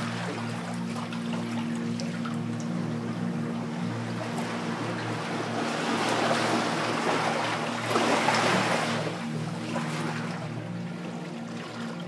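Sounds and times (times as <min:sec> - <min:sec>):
steady low hum: 0:00.0 - 0:12.0
sea waves washing in: 0:03.4 - 0:10.6.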